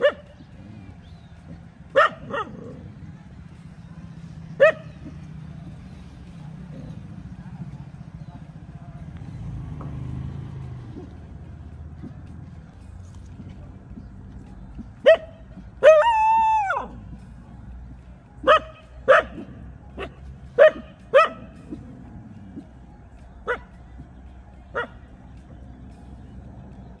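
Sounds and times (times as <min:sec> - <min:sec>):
dog barking: 0:00.0 - 0:01.0, 0:01.9 - 0:03.0, 0:03.9 - 0:05.8, 0:15.0 - 0:17.0, 0:18.4 - 0:22.0, 0:23.4 - 0:23.8, 0:24.7 - 0:25.0.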